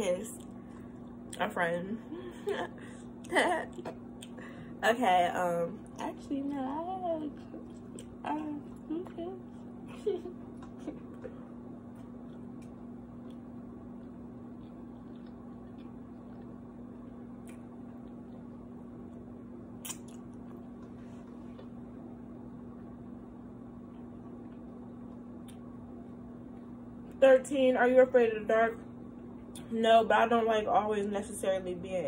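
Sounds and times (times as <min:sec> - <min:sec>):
low electrical hum: 0:00.0 - 0:32.0
mouth sounds of eating: 0:07.3 - 0:11.4.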